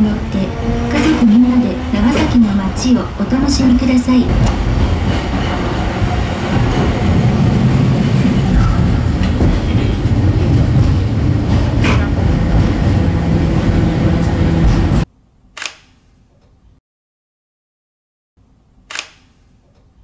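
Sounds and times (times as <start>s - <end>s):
train wheels rumbling on rails: 0.0s - 15.1s.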